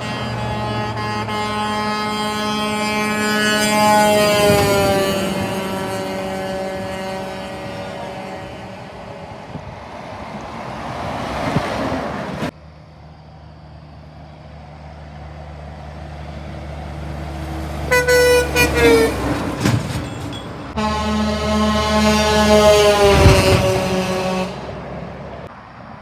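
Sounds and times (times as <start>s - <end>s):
truck air horn blasts: 0.0s - 9.6s, 17.8s - 19.5s, 20.7s - 24.9s
trucks passing on road: 0.0s - 26.0s.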